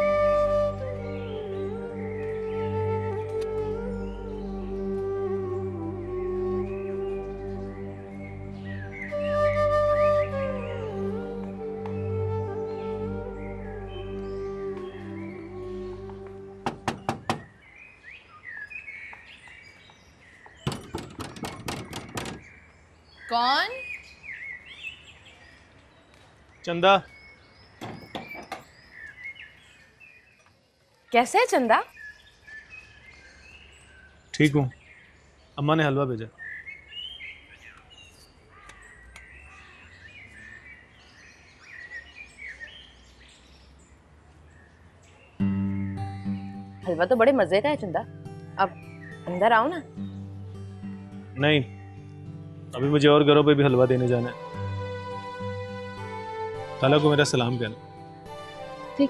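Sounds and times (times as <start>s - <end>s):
birds chirping: 0.0s - 59.0s
knocking on metal door: 16.6s - 17.5s, 20.6s - 22.5s, 27.8s - 28.6s.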